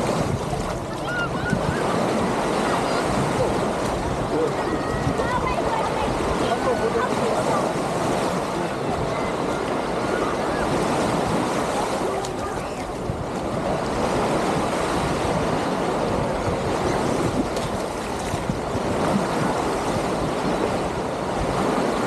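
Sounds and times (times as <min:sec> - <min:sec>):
small waves washing onto shore: 0:00.0 - 0:22.0
wind buffeting microphone: 0:00.0 - 0:22.0.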